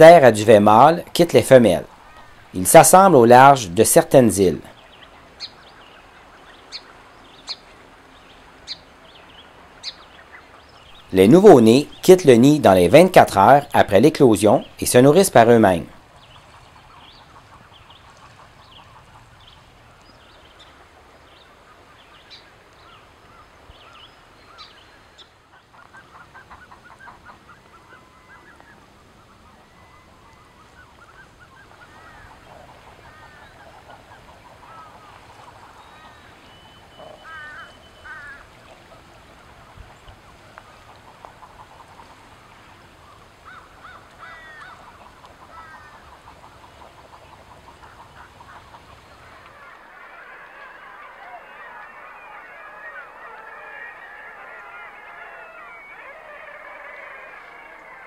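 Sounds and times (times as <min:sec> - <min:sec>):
duck low calls: 0:36.9 - 0:38.4, 0:47.7 - 0:58.0.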